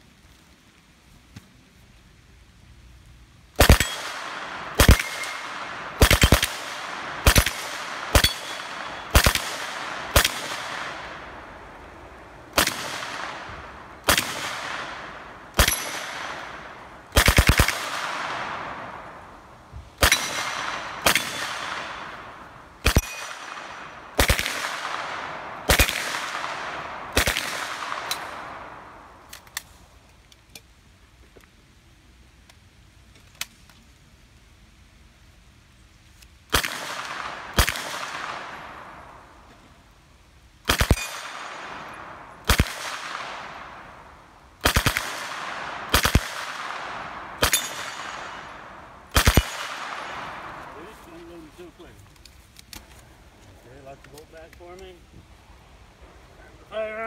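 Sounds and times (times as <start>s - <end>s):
submachine gun bursts with echo: 3.6s - 11.2s, 12.5s - 18.9s, 20.0s - 28.7s, 44.6s - 50.6s.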